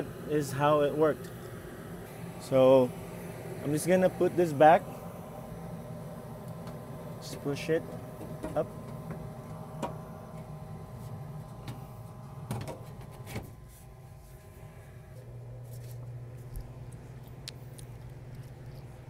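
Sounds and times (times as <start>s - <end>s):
gas furnace humming: 0.0s - 19.0s.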